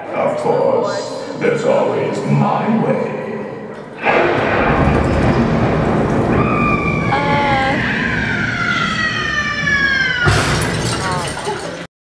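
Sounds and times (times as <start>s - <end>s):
loud crash: 10.2s - 11.5s.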